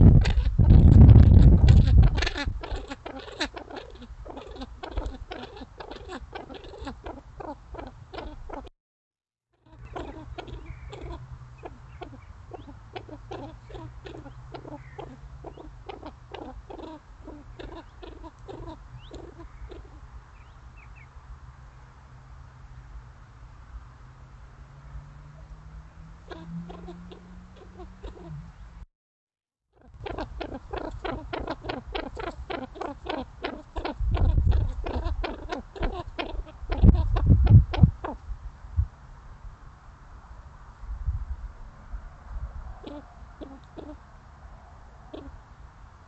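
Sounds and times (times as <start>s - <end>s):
pheasants calling: 0.0s - 8.7s, 9.7s - 21.0s, 26.2s - 28.6s, 29.8s - 38.2s, 42.8s - 44.0s, 45.1s - 45.4s.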